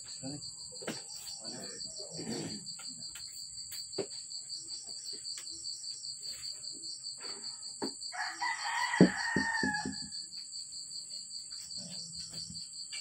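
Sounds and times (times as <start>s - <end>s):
pulsing insect chorus: 0.0s - 13.0s
rooster crowing: 8.1s - 10.2s.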